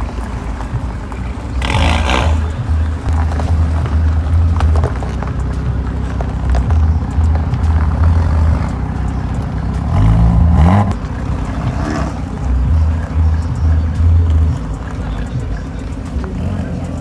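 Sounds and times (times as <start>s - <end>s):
car engine revving: 0.0s - 17.0s
exhaust burst: 1.6s - 2.8s.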